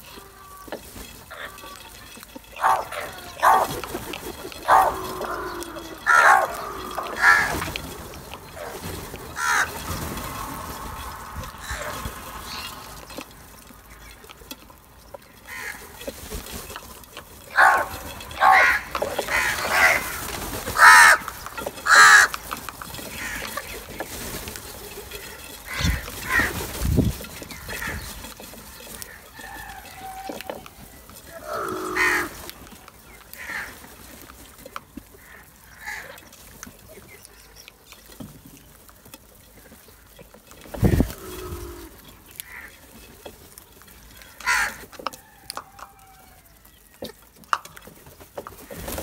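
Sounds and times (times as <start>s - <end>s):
crows cawing: 0.0s - 14.0s, 15.4s - 16.2s, 17.5s - 24.1s, 25.1s - 26.8s, 27.4s - 34.2s, 35.1s - 36.4s, 40.8s - 43.1s, 44.2s - 46.4s.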